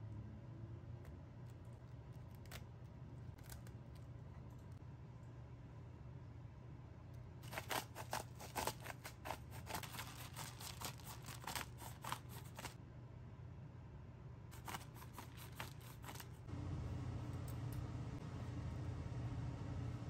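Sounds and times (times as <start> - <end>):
seasoning clicks and crunches: 7.4 - 12.8, 14.6 - 16.5
low hum: 16.3 - 20.0.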